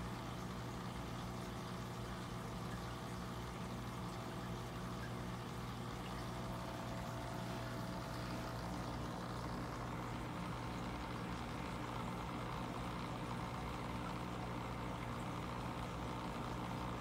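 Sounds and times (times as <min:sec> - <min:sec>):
aquarium pump hum: 0:00.0 - 0:17.0
running water: 0:00.0 - 0:17.0.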